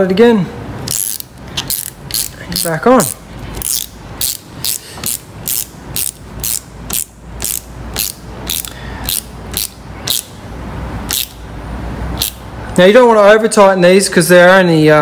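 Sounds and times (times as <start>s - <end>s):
ratchet driver clicking: 0.8s - 10.4s, 11.1s - 11.4s, 12.2s - 12.5s.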